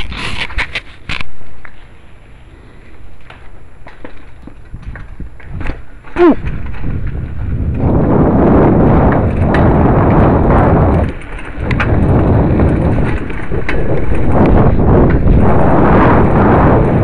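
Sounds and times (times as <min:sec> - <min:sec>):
bicycle rolling over pavement: 0:00.0 - 0:17.0
sharp clicks and rattling knocks: 0:09.0 - 0:15.6.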